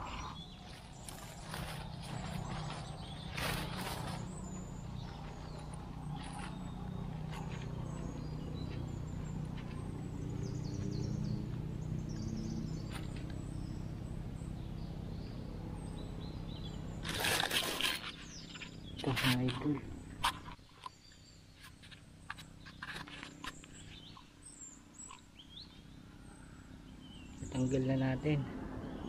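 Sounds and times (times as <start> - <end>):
small birds chirping: 0.0 - 29.0
steady low hum: 0.0 - 29.0
rustling dry leaf litter: 0.6 - 8.0, 17.0 - 19.5.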